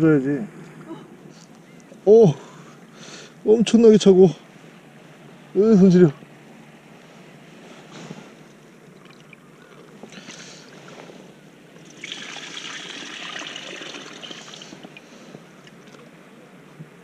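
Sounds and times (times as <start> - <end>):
water pouring and splashing: 8.9 - 11.2, 11.8 - 16.0.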